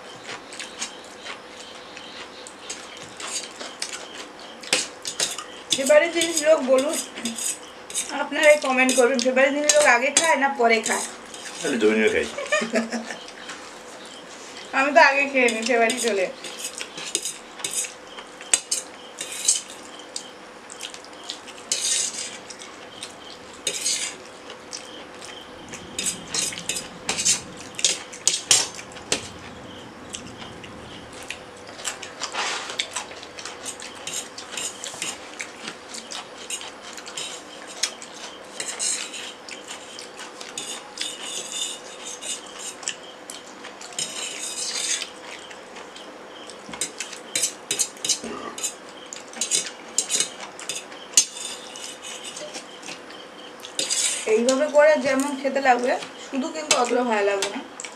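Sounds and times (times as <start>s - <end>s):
forks scraping metal plates: 21.7s - 22.4s, 23.6s - 24.2s, 31.8s - 35.2s, 36.5s - 40.0s, 40.6s - 42.8s, 44.0s - 45.1s, 49.4s - 52.6s, 53.8s - 54.6s.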